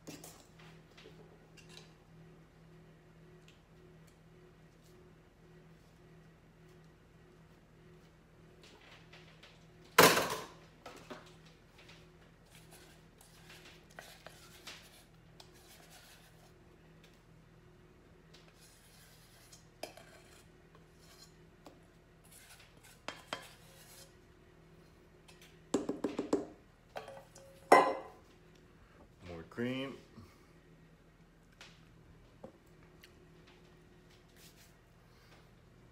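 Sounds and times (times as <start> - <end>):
spatula scraping metal bowl: 18.6 - 21.4, 22.2 - 24.2.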